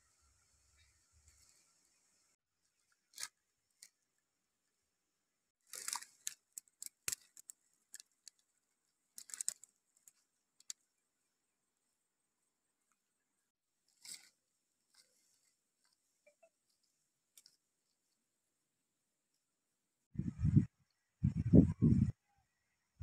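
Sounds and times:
basket and soil rustling: 5.6 - 8.4.

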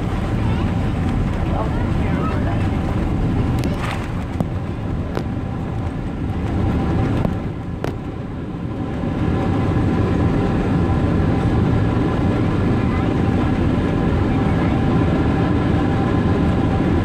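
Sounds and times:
jet engine rumble and airflow: 0.0 - 17.0.

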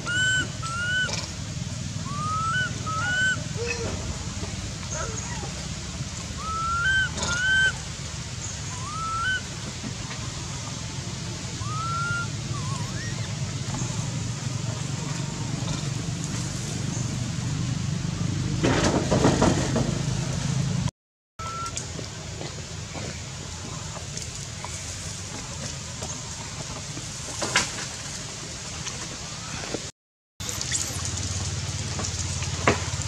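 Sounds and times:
baby monkey coo calls: 0.0 - 1.3, 2.1 - 4.0, 6.4 - 7.8, 8.7 - 9.5, 11.6 - 13.4
low background hum: 0.0 - 18.6
rustling and crackling branches: 21.8 - 29.9.

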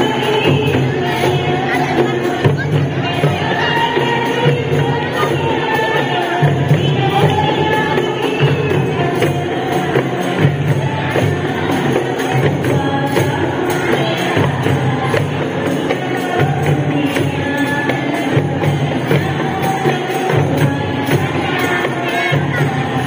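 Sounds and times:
frame drums beating: 0.0 - 23.0
tambourine jingling: 0.0 - 23.0
women singing together: 0.0 - 23.0.

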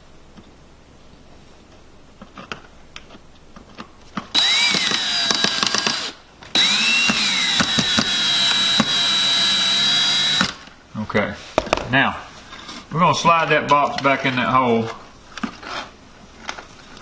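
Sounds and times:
cordless drill driving screw: 4.3 - 10.7.

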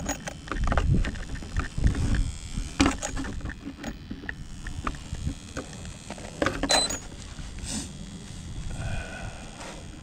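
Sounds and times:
wind rumble on microphone: 0.6 - 3.5.

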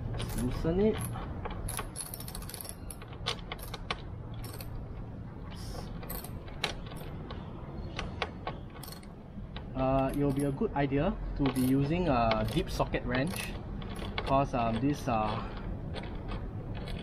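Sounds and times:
ratchet wrench clicking: 11.4 - 17.0.

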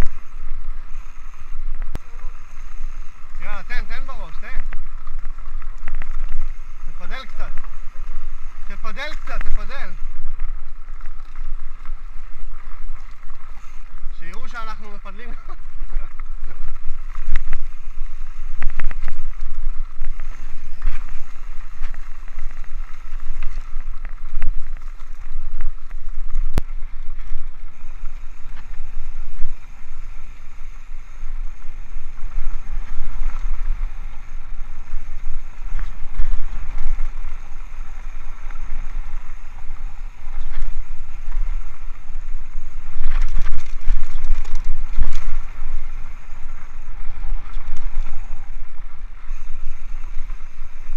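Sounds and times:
bike tyre noise: 0.0 - 50.9
wind rumble on microphone: 0.0 - 50.9
bike rattling and knocking: 3.4 - 48.6.

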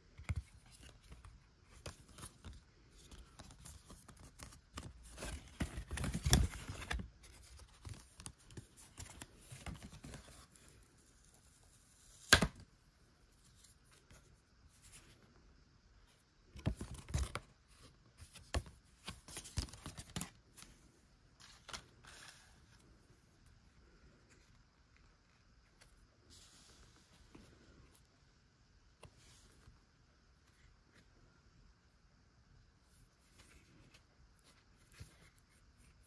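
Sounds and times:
paper rustling and crinkling: 0.2 - 10.8.

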